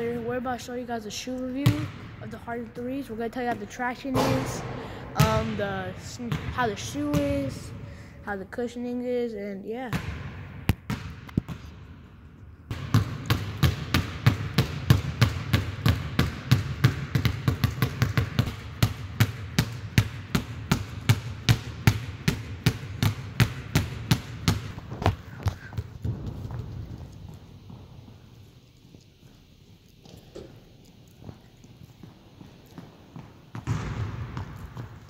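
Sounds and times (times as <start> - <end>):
basketball dribbling on hard court: 6.2 - 7.7, 9.9 - 11.7, 12.7 - 28.4, 31.2 - 35.0.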